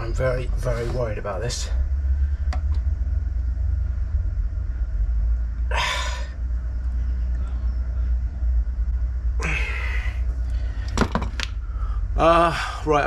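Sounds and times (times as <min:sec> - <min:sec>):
low rumble: 0:00.0 - 0:13.0
man exhaling with effort: 0:05.6 - 0:06.4, 0:09.4 - 0:11.0.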